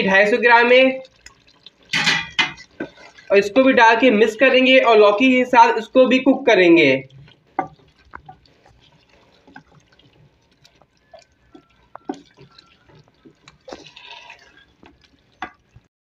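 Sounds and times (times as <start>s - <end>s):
spatula stirring thick curry: 0.3s - 4.8s, 5.9s - 15.9s
spatula scraping metal pot: 10.8s - 15.6s.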